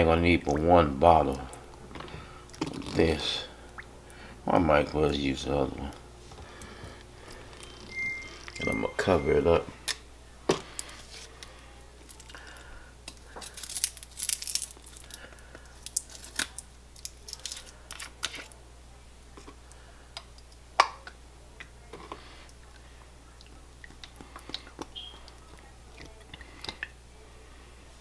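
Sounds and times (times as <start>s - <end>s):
crinkling rustle: 13.2s - 18.5s.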